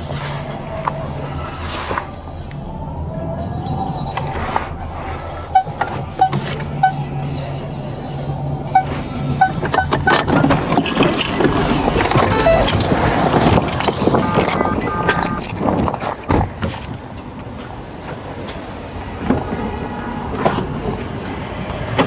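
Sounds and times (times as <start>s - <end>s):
street noise: 0.0s - 22.0s
short electronic beeps: 12.1s - 13.0s, 13.9s - 15.5s.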